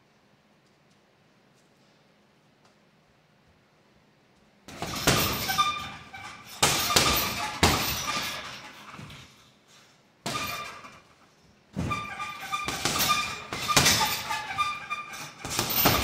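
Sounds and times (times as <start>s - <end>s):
punches thudding on a punching bag: 4.7s - 6.0s, 6.6s - 8.5s, 15.4s - 16.0s.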